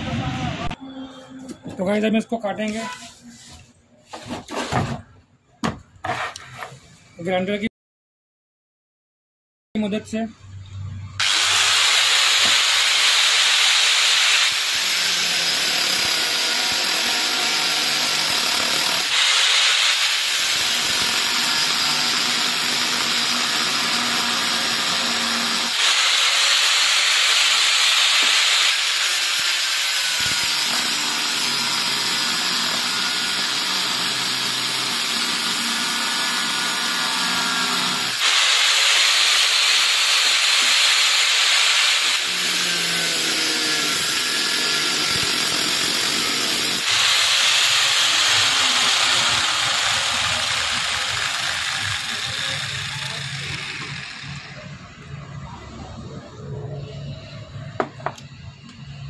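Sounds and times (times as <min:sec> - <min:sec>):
angle grinder cutting metal: 0:11.2 - 0:55.1.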